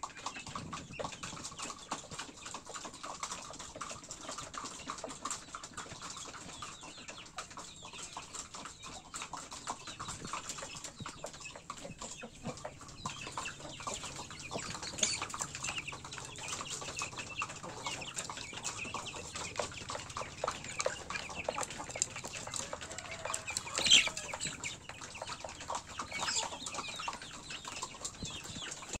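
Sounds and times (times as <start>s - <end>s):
chickens clucking: 0.0s - 29.0s
pecking and scratching clicks: 0.0s - 29.0s
chicken squawk: 22.5s - 24.6s.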